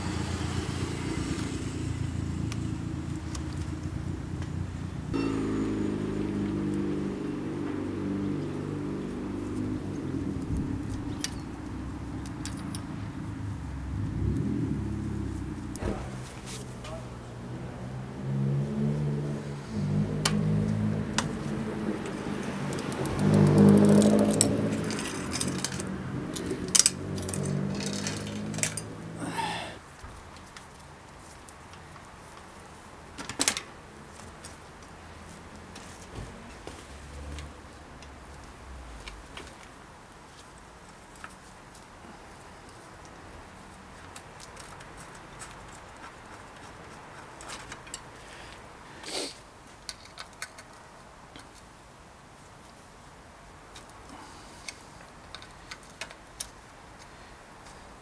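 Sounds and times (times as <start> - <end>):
steady low tone: 0.9 - 16.2
bicycle parts clicking: 10.4 - 13.1, 22.0 - 29.0, 42.7 - 48.6, 49.7 - 51.7, 53.7 - 57.8
bicycle chain clinking: 22.7 - 29.4.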